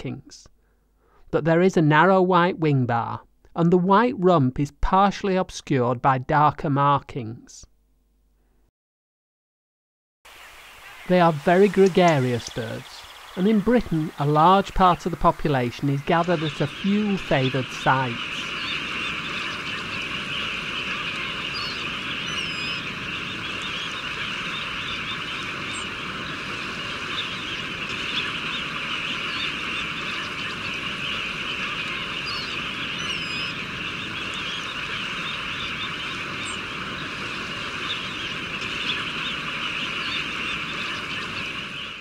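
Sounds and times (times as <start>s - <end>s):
flock of birds chattering: 10.3s - 42.0s
thin higher bird calls: 10.3s - 42.0s.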